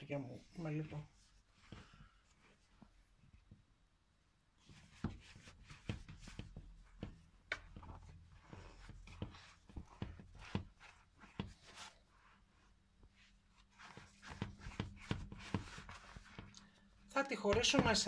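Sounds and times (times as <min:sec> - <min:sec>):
dough kneading thumps: 0:04.6 - 0:18.0.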